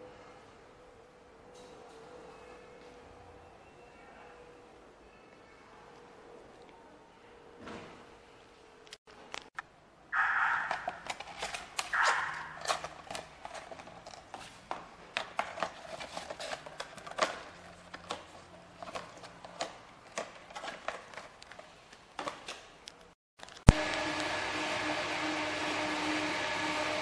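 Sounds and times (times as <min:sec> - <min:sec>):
cardboard rustling: 0:11.0 - 0:22.3.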